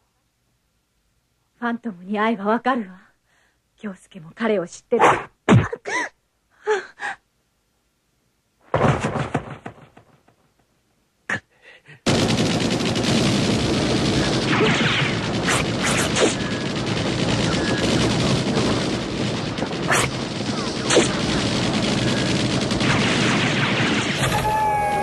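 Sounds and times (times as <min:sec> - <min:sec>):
automatic rifle gunfire: 0:12.1 - 0:25.0.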